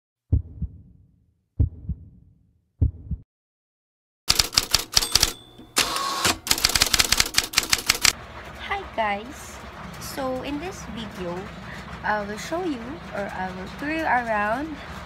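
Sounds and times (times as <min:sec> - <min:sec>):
low double thumps: 0:00.3 - 0:01.0, 0:01.6 - 0:03.2
typewriter key clacks: 0:04.3 - 0:08.2.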